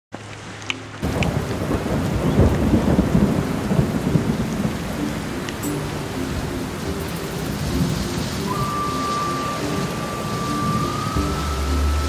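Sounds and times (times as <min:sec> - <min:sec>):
steady rain: 0:00.1 - 0:12.0
thunder rumbling: 0:01.0 - 0:12.0.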